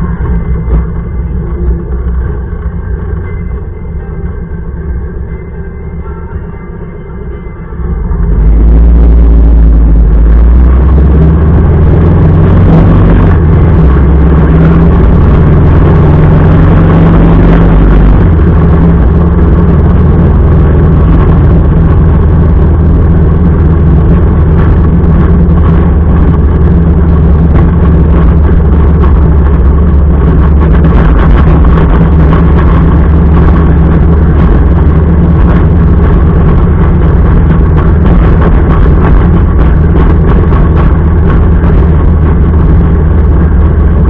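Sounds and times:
motorcycle engine running: 0:00.0 - 0:44.0
rushing wind noise: 0:07.9 - 0:44.0.

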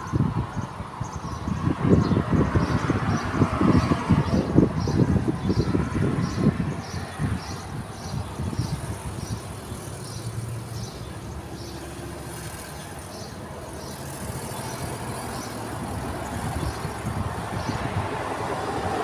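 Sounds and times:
motor vehicle rumble: 0:00.0 - 0:19.0.

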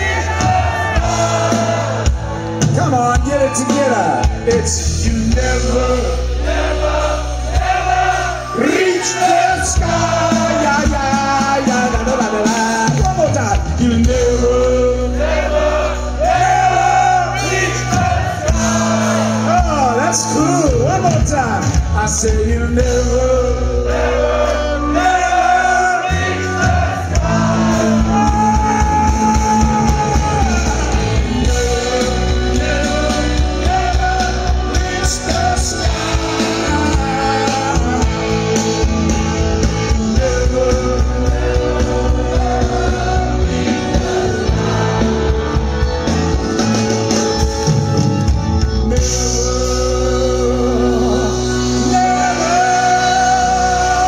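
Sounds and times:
live rock band playing: 0:00.0 - 0:54.0.

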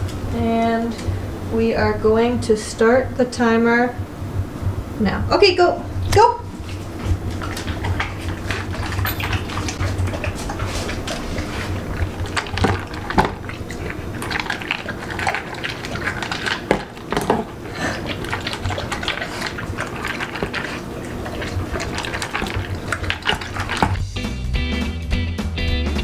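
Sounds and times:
dog slurping and lapping: 0:06.4 - 0:24.1.

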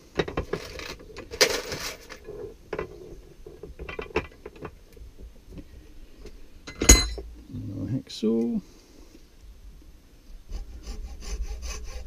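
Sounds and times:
tools knocking and clattering: 0:00.1 - 0:05.7, 0:06.7 - 0:07.3
rustling scrape: 0:00.3 - 0:03.8.

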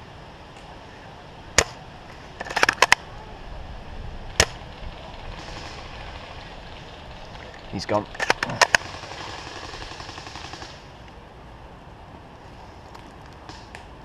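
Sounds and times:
airsoft rifle shots: 0:01.6 - 0:01.8, 0:04.3 - 0:06.4, 0:08.2 - 0:10.9.

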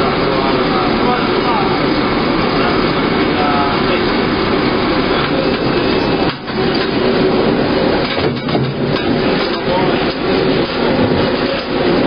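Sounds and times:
sorting machinery rattling: 0:05.1 - 0:12.0.

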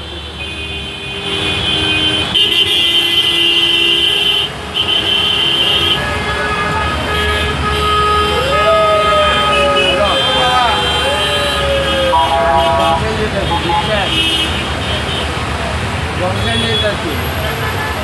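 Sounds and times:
car horns honking: 0:00.3 - 0:15.4.

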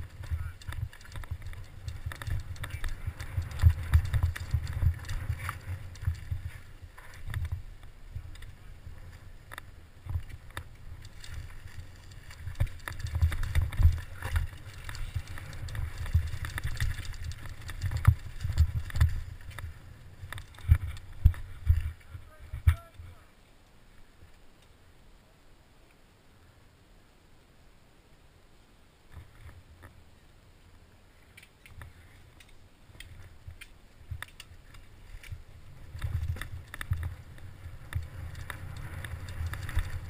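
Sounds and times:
wheels knocking on rocks: 0:00.0 - 0:22.0, 0:32.4 - 0:40.0
mountain bike rattling over rocks: 0:00.0 - 0:22.7, 0:34.1 - 0:40.0
wind buffeting microphone: 0:00.0 - 0:22.8.

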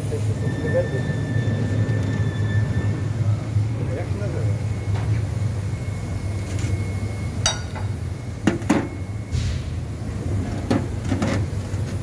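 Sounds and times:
low machine hum: 0:00.0 - 0:12.0
knocks ringing like steel: 0:07.4 - 0:07.9.

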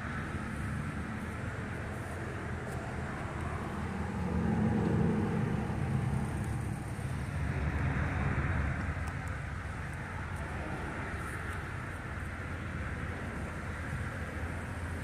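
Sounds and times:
car engine driving past: 0:03.4 - 0:08.9.

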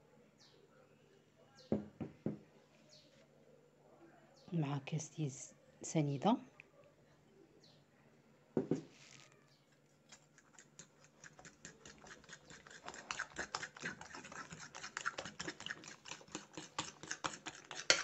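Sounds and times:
glass knocking on a table: 0:01.7 - 0:02.4, 0:08.6 - 0:08.9
utensil clicking against a bowl: 0:10.1 - 0:18.0.

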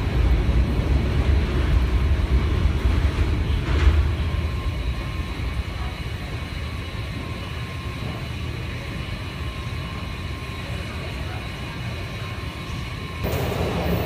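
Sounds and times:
low rumble and hum: 0:00.0 - 0:10.5
faint high whine: 0:00.0 - 0:14.0.

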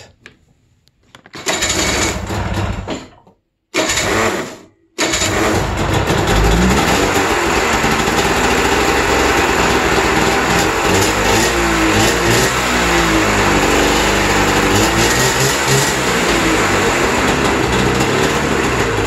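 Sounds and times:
electric starter cranking: 0:01.3 - 0:02.9, 0:03.7 - 0:19.0
snowmobile engine running: 0:05.1 - 0:19.0.

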